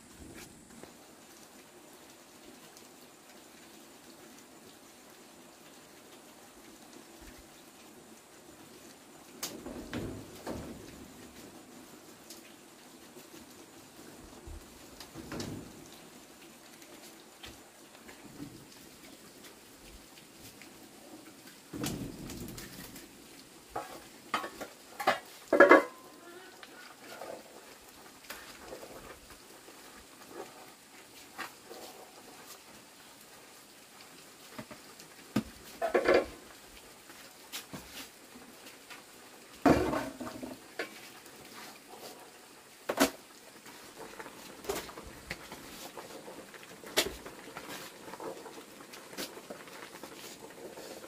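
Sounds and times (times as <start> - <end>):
faint steady hiss: 0.0 - 51.0
utensils clinking on pots and dishes: 23.8 - 26.0.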